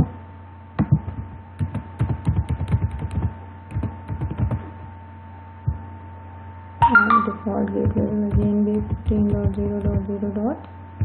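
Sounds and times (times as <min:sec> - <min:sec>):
steady hum: 0:00.0 - 0:11.0
computer keyboard typing: 0:01.6 - 0:04.6, 0:07.8 - 0:10.2.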